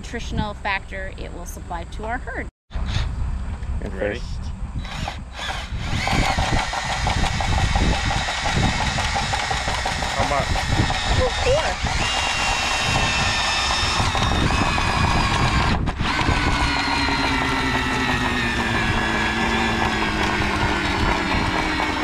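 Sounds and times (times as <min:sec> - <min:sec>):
power drill motor whining: 0:04.8 - 0:22.0.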